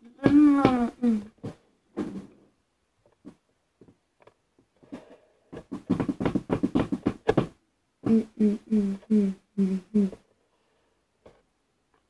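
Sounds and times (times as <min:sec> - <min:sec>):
person making mouth pops: 0:08.0 - 0:10.2
person voicing short pitched syllables: 0:08.0 - 0:10.2.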